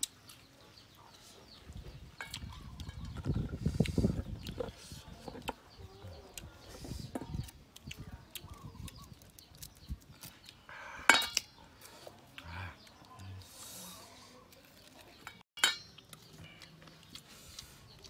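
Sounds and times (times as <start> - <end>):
knife clinking into metal bowl: 15.3 - 16.0.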